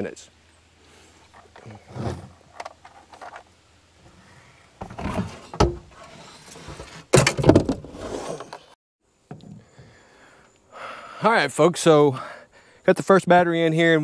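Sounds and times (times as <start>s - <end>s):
long sliding scrape: 5.2s - 7.1s, 7.9s - 8.8s.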